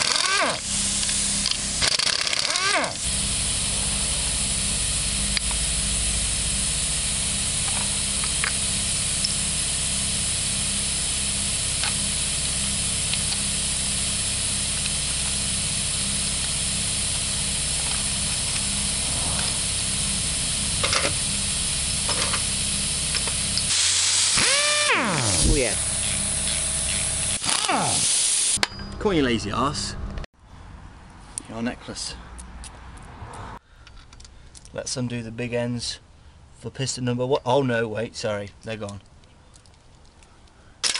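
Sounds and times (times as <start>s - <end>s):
spanner clicking on metal: 0.0s - 3.0s
low rumble: 3.1s - 8.5s, 17.7s - 23.0s.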